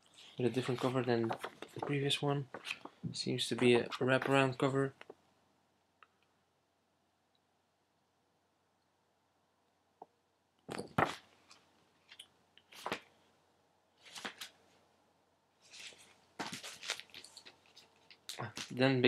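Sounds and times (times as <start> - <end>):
paper rustling: 0.1 - 4.6, 12.1 - 13.1, 14.0 - 14.6, 15.6 - 18.8.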